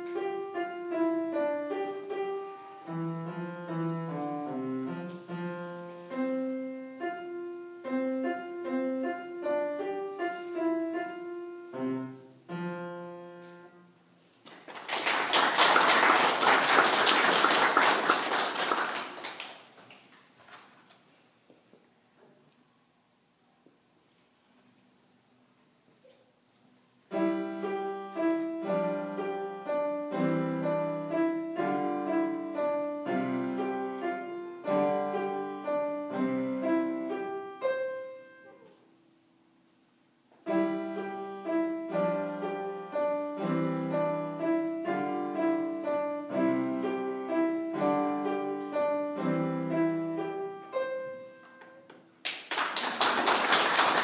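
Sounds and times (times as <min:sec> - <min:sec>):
child playing piano: 0:00.0 - 0:13.9, 0:27.1 - 0:38.8, 0:40.4 - 0:51.9
people clapping: 0:14.4 - 0:20.7, 0:51.6 - 0:54.0.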